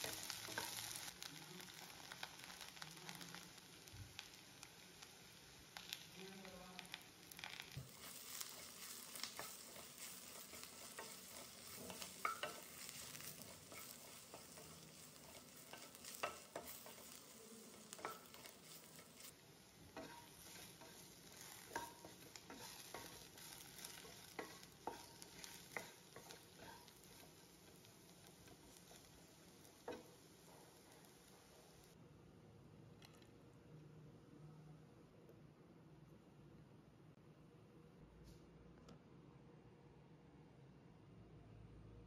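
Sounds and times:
vegetables sizzling in a pan: 0.0 - 32.0
spatula knocking and scraping pan: 7.8 - 19.3, 19.9 - 31.0.

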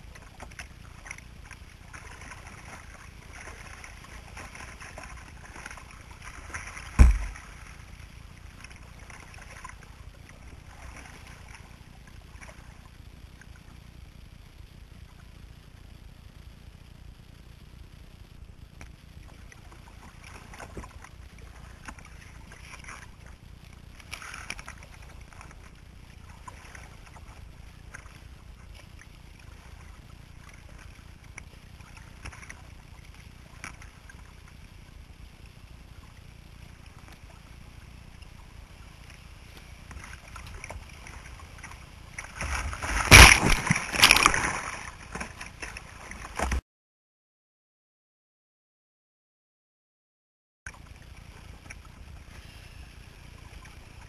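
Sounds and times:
paddle splashes: 0.0 - 13.5, 19.2 - 34.6, 35.9 - 46.6
water sloshing against hull: 0.0 - 16.4, 18.3 - 46.6, 50.7 - 54.0
moving water: 0.0 - 46.6, 50.7 - 54.0.

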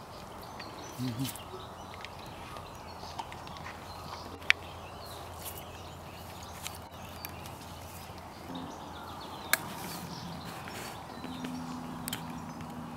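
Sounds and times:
cattle tearing grass: 5.1 - 12.3.

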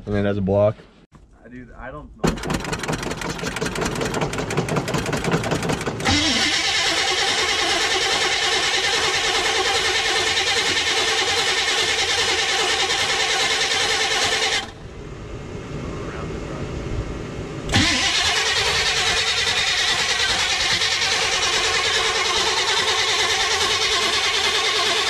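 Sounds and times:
engine running steadily: 1.5 - 25.0
engine starter cranking: 2.2 - 14.8, 17.7 - 25.0.

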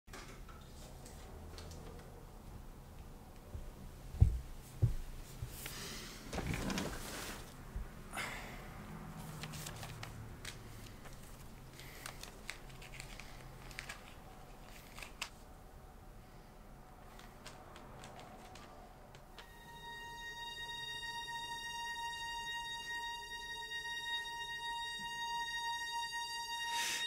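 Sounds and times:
dull thumps: 3.5 - 5.6
paper crinkling: 6.3 - 7.6, 9.2 - 15.4, 17.0 - 19.4
envelope tearing open: 9.4 - 15.4.

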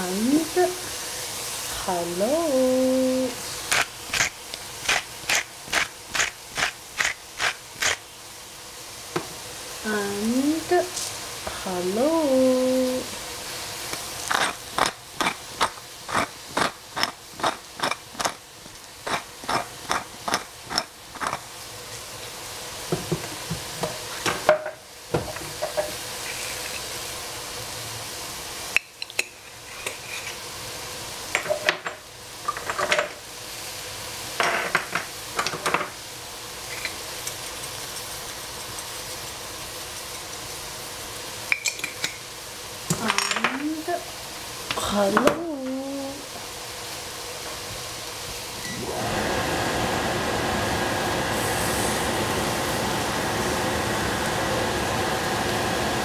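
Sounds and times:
food sizzling: 0.0 - 56.0.

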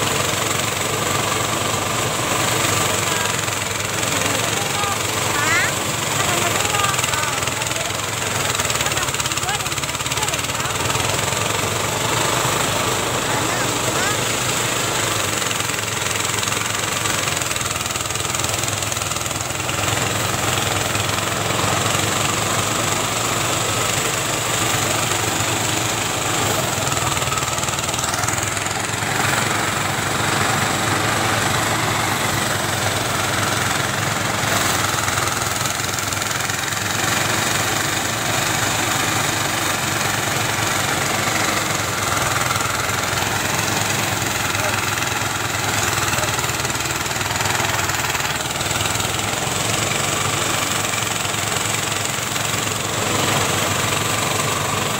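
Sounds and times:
rice thresher engine running: 0.0 - 54.9.

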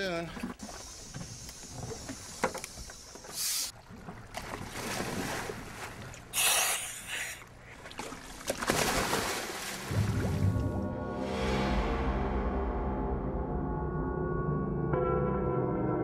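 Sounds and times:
water splashing: 0.0 - 10.8
water noise: 0.0 - 12.2
wind: 0.0 - 12.8.

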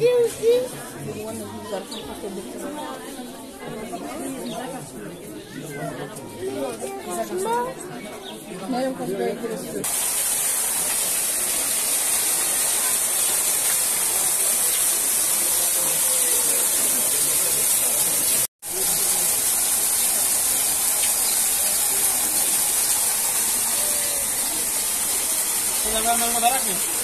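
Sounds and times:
small waterfall splashing: 9.8 - 27.0.

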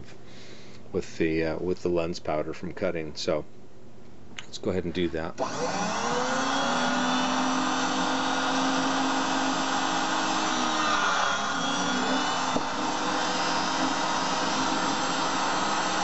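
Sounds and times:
electric motor whining: 5.4 - 16.0.

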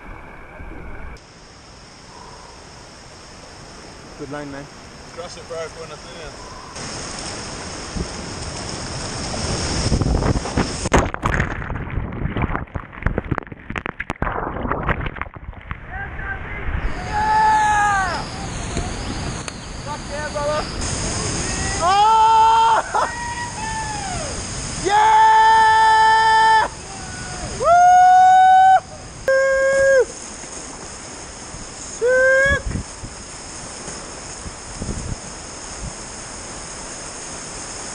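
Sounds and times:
rushing whitewater: 3.6 - 10.9, 15.8 - 28.3, 29.0 - 37.9
people whooping yells: 16.9 - 19.0, 21.4 - 30.1, 32.0 - 32.7.

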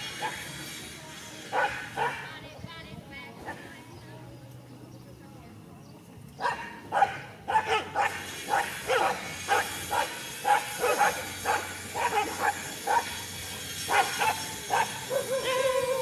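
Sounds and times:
dogs barking sharply: 6.4 - 13.2, 13.9 - 16.0.

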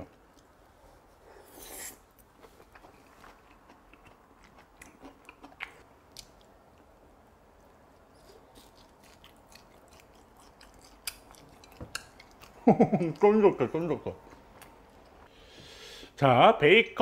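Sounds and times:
person chewing and mouth smacks: 2.4 - 6.9, 8.0 - 12.6.

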